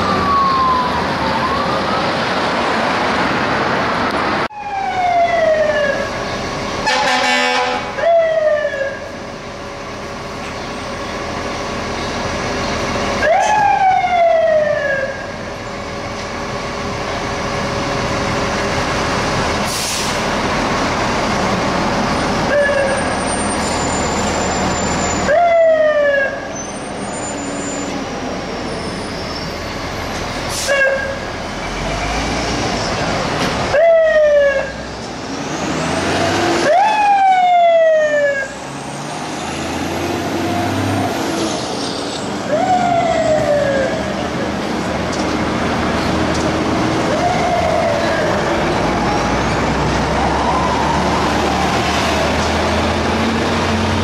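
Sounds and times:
fire engine siren: 0.0 - 3.5, 4.4 - 35.1, 35.7 - 41.6, 42.4 - 54.0
steady traffic noise: 0.0 - 54.0
air horn blast: 6.8 - 8.0.

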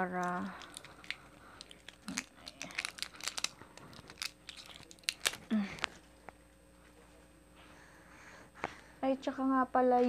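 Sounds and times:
tape peeling and crackling: 0.0 - 6.0.

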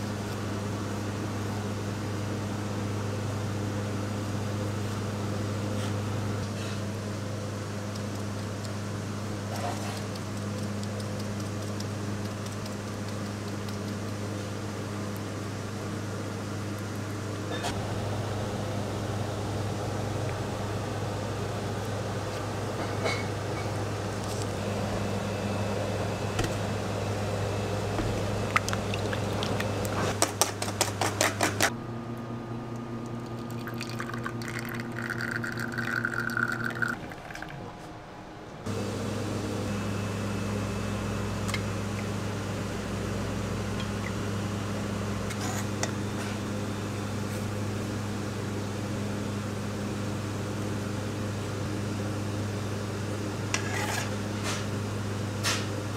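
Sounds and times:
espresso machine running: 0.0 - 30.2, 33.0 - 37.5, 38.6 - 55.9
low machine hum: 0.0 - 55.9
shot pouring into glass: 33.6 - 37.1.

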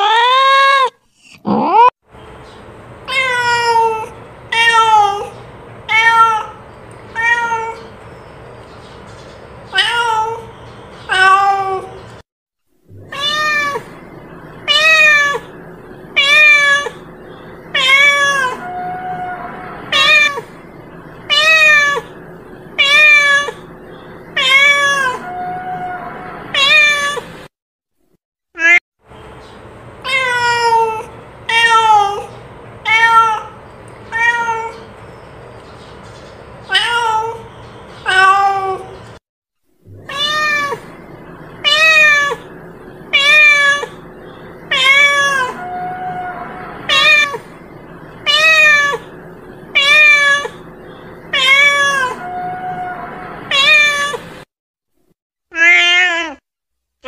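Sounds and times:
cat meowing: 3.1 - 6.6, 7.2 - 7.9, 9.7 - 10.5, 11.1 - 12.0, 13.0 - 14.0, 14.6 - 15.5, 16.2 - 17.0, 17.7 - 20.5, 21.2 - 22.1, 22.8 - 23.7, 24.4 - 27.3, 28.6 - 28.8, 30.0 - 34.9, 36.7 - 39.0, 40.0 - 42.5, 43.1 - 44.0, 44.7 - 47.5, 48.2 - 50.6, 51.2 - 54.3, 55.5 - 56.4.

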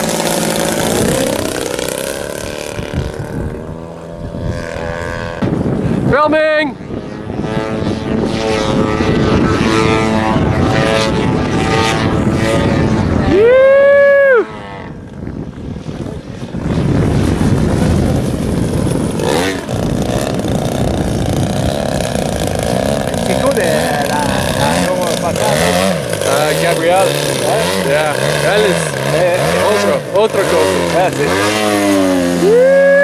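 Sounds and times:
model airplane motor buzzing: 0.0 - 33.0
rising and falling tone: 7.6 - 15.1, 31.9 - 33.0.

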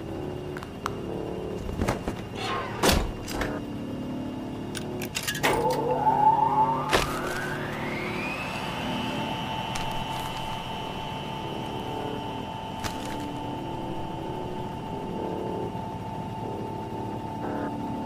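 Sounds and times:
low droning score: 0.0 - 18.0
rising tone: 5.3 - 17.4.

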